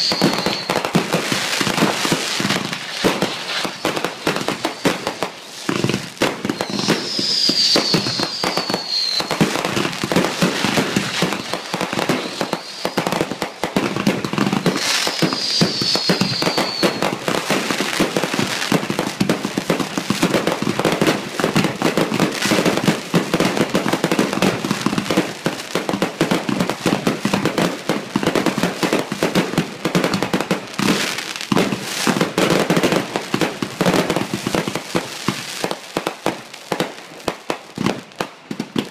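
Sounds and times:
falling firework whistles: 0:00.0 - 0:19.8
fireworks bangs and crackles: 0:00.0 - 0:38.9.

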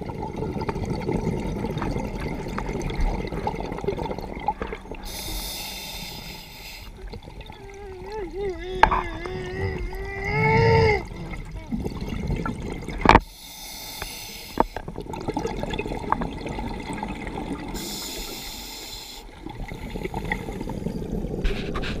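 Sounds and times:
exhaled bubbles: 0:00.0 - 0:13.2, 0:14.2 - 0:22.0
regulator breathing hiss: 0:05.1 - 0:06.9, 0:13.3 - 0:14.8, 0:17.8 - 0:19.3.

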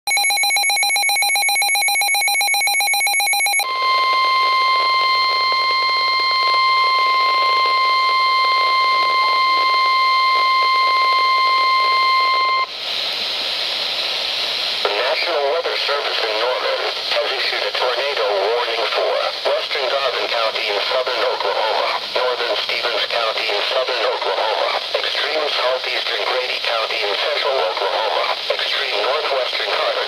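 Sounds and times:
rapidly pulsing electronic beep: 0:00.1 - 0:12.6
steady warning alarm tone: 0:00.1 - 0:12.7
radio hiss: 0:03.8 - 0:30.0.

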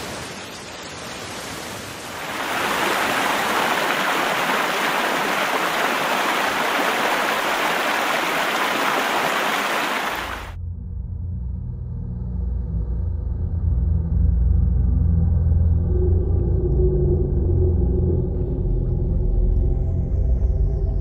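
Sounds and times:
heavy rain hissing: 0:00.0 - 0:10.5
river in flood rushing: 0:00.0 - 0:10.6.

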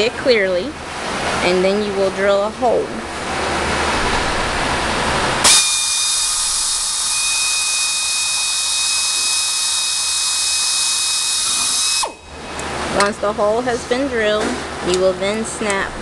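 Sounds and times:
hissing noise: 0:03.8 - 0:12.4
cordless drill whining: 0:05.4 - 0:12.4.

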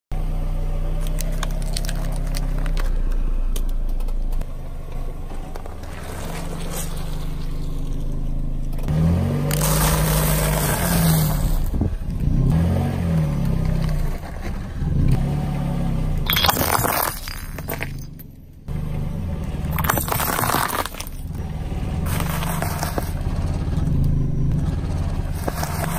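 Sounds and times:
car engine running low: 0:00.1 - 0:25.9
tyre crunching potato crisps: 0:01.0 - 0:03.0.

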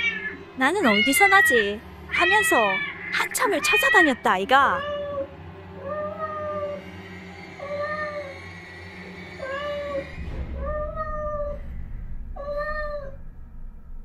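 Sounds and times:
cat meows through speaker: 0:00.0 - 0:05.3.

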